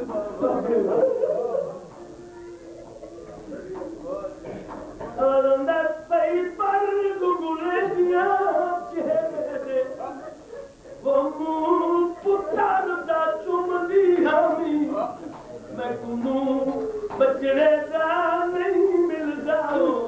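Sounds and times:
man chanting melodically: 5.2 - 10.4, 11.0 - 20.0.

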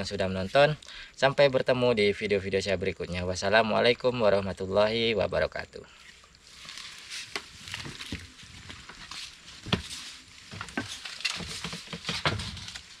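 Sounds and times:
mesh bag rustling and knocking: 6.5 - 13.0.

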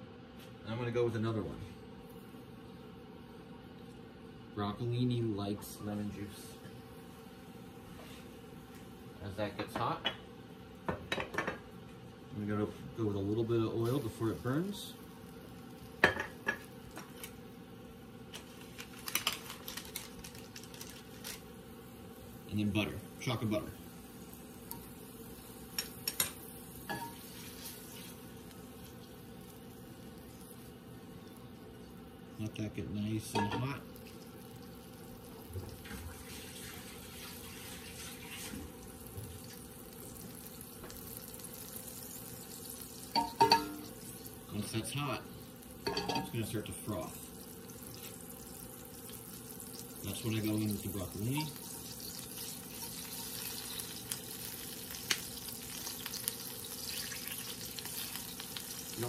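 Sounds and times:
butter sizzling in skillet: 13.1 - 32.4, 33.0 - 59.0
bottle clinking on skillet: 16.0 - 16.7, 25.8 - 27.3, 33.3 - 33.8, 43.1 - 43.9, 45.8 - 46.4.

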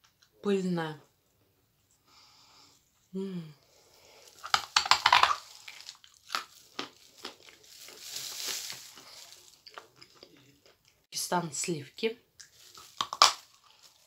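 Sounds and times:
plastic bag crinkling: 3.9 - 10.4, 12.4 - 14.0
chalk crunching when chewed: 4.3 - 11.0.

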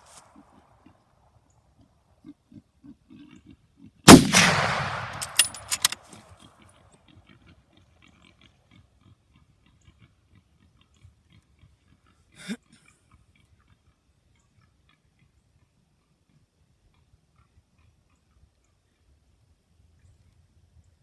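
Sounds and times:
sharp clicks: 4.1 - 6.2
rifle shot echoing: 4.1 - 6.3.

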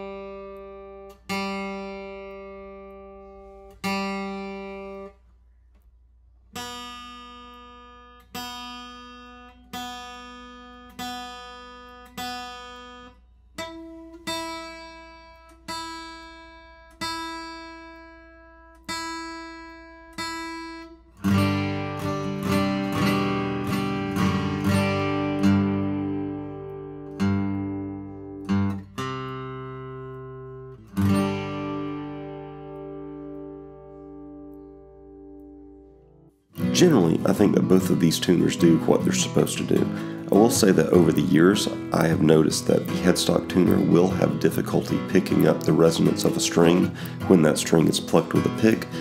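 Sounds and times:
acoustic guitar chords strummed: 0.0 - 5.8, 6.4 - 49.0
acoustic guitar strings plucked: 0.0 - 5.8, 6.5 - 49.0.

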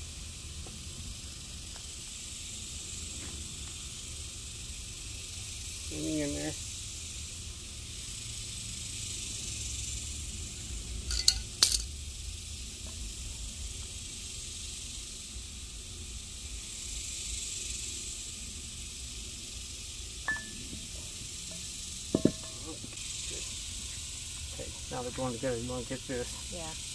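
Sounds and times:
steady hiss: 0.0 - 26.9
sharp metal clinks: 11.0 - 12.0, 20.3 - 23.0.

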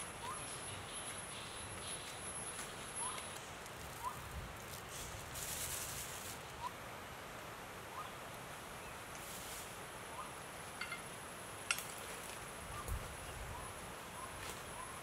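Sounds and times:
bird chirping softly: 0.2 - 4.2.

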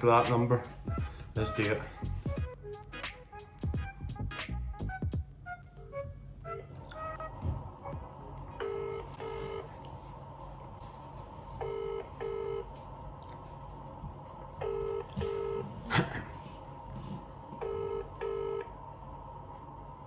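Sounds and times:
phone ringing tone: 8.6 - 9.6, 11.6 - 12.7, 14.6 - 15.6, 17.6 - 18.7.

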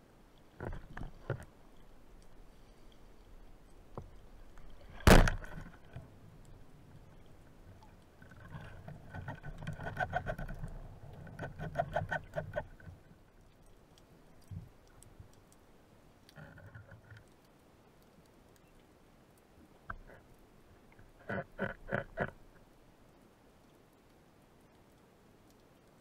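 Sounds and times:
speargun firing underwater: 5.0 - 5.5.

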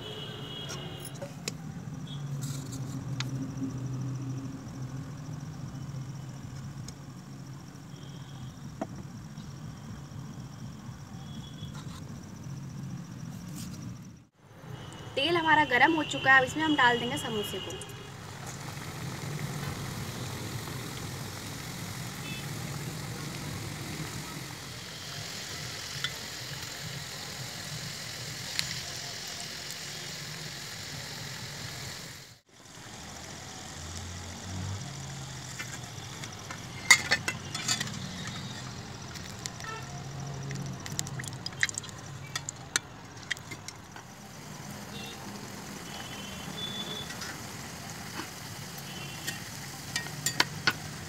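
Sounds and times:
food sizzling in hot oil: 15.3 - 51.0.

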